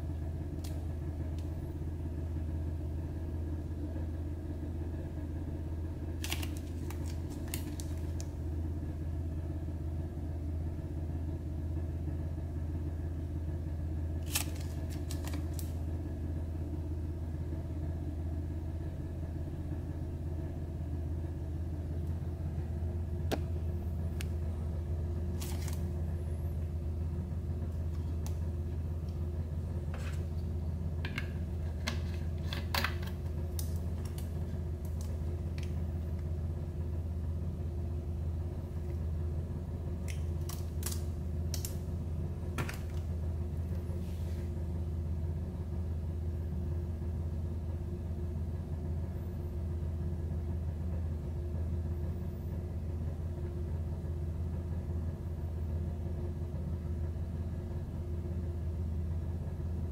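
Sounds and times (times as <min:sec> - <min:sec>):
steady low hum: 0:00.0 - 0:59.9
plastic bottle crackling: 0:06.2 - 0:08.3, 0:25.3 - 0:25.8.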